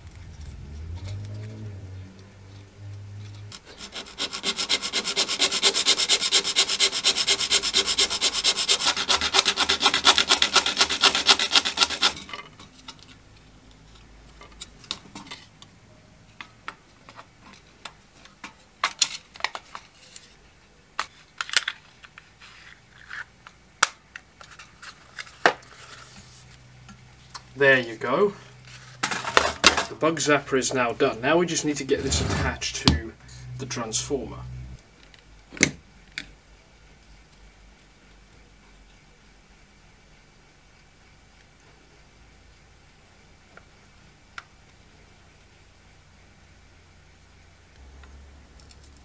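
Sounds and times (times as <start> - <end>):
fast even scraping: 0.0 - 12.3, 30.8 - 34.8
plastic parts clicking: 21.0 - 22.2.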